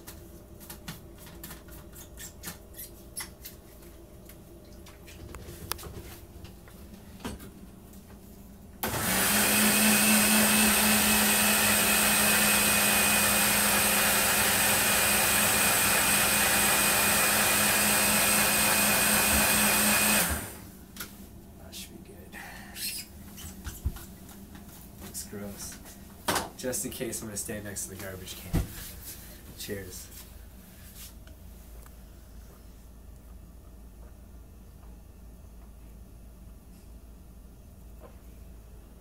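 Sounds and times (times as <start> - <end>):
blender motor running: 8.8 - 20.6.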